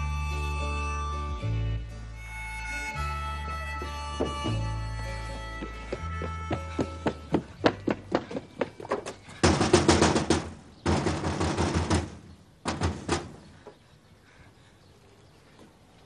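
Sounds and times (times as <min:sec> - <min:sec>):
rapid knocking on window: 0:09.4 - 0:13.4.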